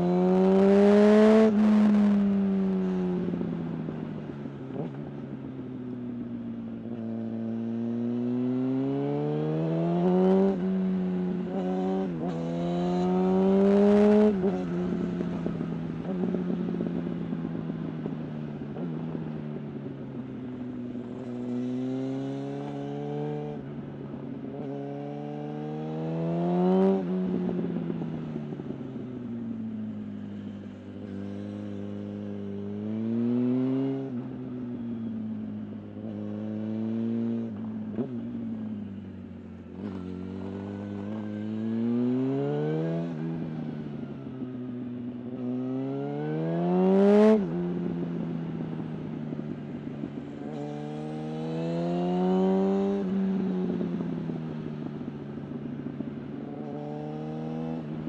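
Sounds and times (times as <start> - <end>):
motorcycle engine revving: 0.0 - 5.4, 6.8 - 19.5, 24.6 - 28.8, 30.4 - 34.6, 35.7 - 58.0.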